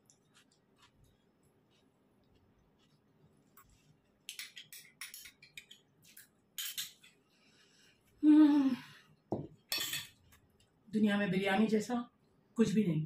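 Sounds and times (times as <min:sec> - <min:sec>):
person humming mmm: 0:08.2 - 0:08.9.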